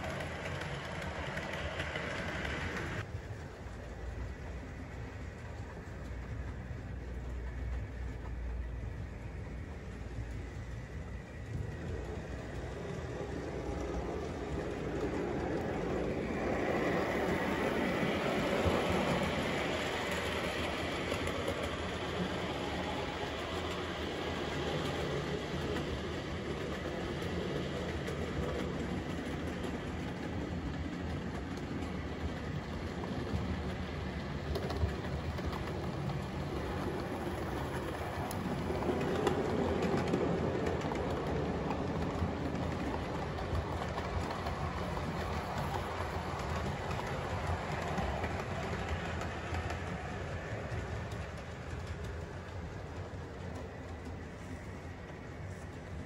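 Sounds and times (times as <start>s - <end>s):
model train running on track: 0.0s - 56.0s.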